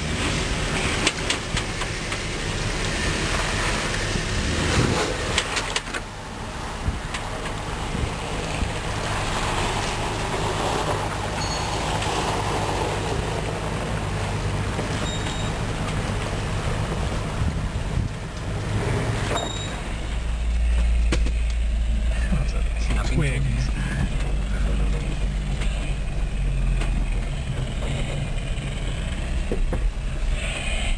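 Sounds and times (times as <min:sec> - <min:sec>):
car engine running slowly: 0:00.0 - 0:30.9
tyres on wet gravel: 0:07.0 - 0:30.6
low engine drone inside cabin: 0:19.4 - 0:30.9.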